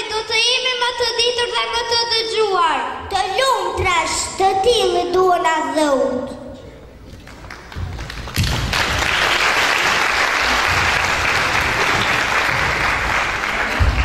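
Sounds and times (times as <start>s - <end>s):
audience applause: 7.2s - 14.0s.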